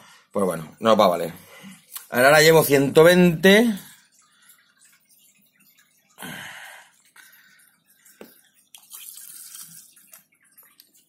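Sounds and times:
water running: 0.4 - 11.0
syringe slurping water: 3.8 - 11.0.

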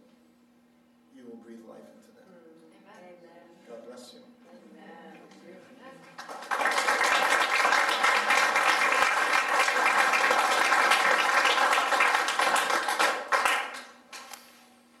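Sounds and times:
audience applauding: 6.1 - 14.3.

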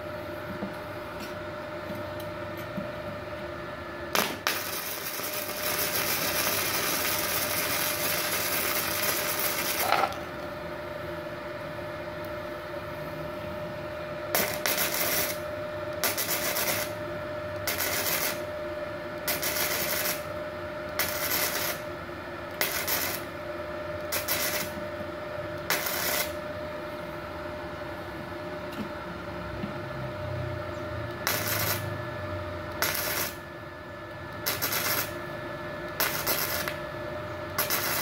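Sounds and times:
welding arc crackling: 4.1 - 10.3, 14.3 - 17.0, 17.6 - 18.5, 19.2 - 20.3, 20.9 - 23.4, 24.1 - 24.8, 25.6 - 26.4, 31.1 - 32.0, 32.7 - 33.4, 34.4 - 35.2, 35.9 - 36.8, 37.5 - 38.0.

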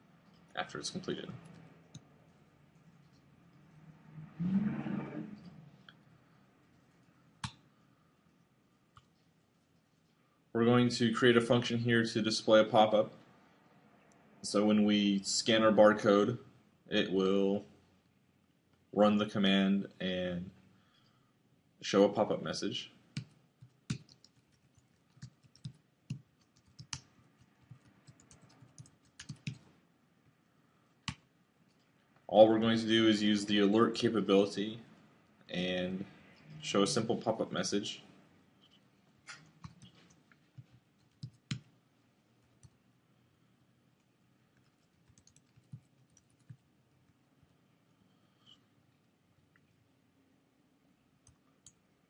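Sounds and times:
computer keyboard typing: 23.1 - 29.7, 39.3 - 41.7, 42.4 - 42.8, 44.6 - 46.7.

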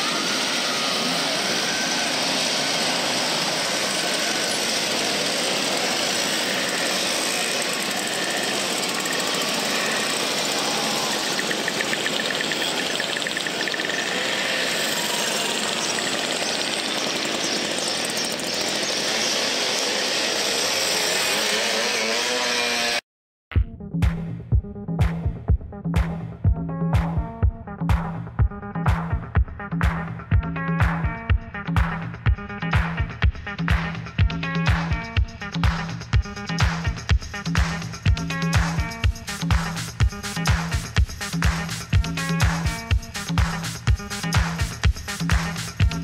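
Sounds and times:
engine rapid firing rhythm: 0.0 - 21.6, 24.0 - 46.0
mopeds engines rattling: 0.0 - 23.0.

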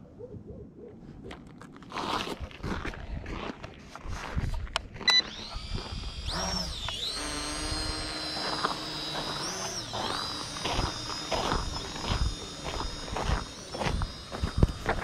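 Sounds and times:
drone propellers whining: 5.0 - 15.0.

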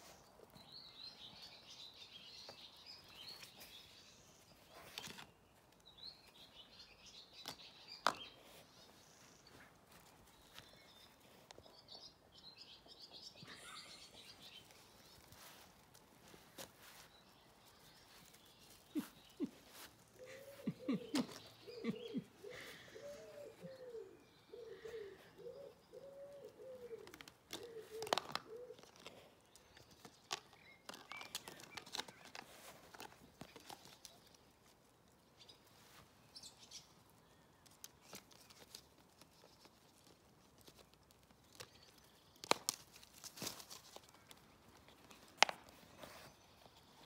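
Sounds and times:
pigeon cooing: 18.9 - 29.0.

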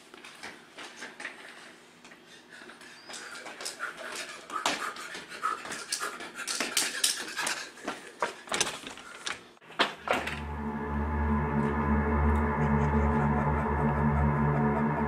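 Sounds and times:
rapid footsteps on tile: 0.0 - 9.2
loud panting breaths: 2.2 - 9.5.

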